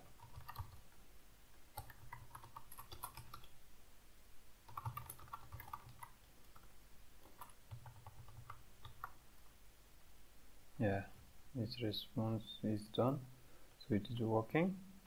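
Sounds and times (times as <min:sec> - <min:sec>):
computer keyboard typing: 0:00.1 - 0:00.8, 0:01.7 - 0:03.5, 0:04.7 - 0:09.2.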